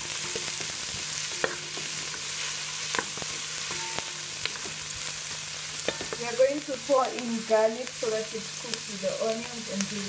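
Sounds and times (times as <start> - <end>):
onions sizzling in hot oil: 0.0 - 10.0.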